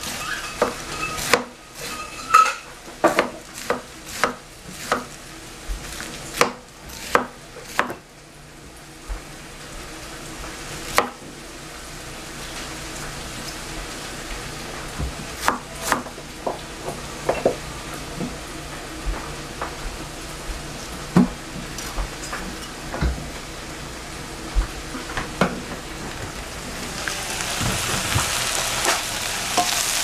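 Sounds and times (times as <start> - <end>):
knife chopping on cutting board: 0.6 - 1.5, 3.0 - 5.1, 6.4 - 8.0, 10.9 - 11.2, 15.4 - 16.2
steady hiss: 25.8 - 30.0.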